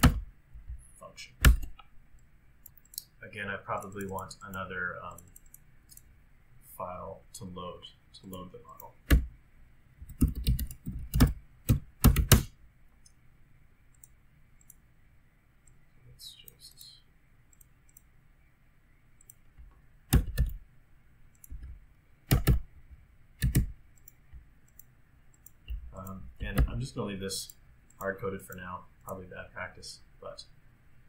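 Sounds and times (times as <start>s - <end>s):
mouse clicks: 1.4s - 3.2s
keyboard keystrokes: 10.0s - 12.5s, 20.1s - 20.6s, 21.4s - 22.6s, 23.4s - 24.8s.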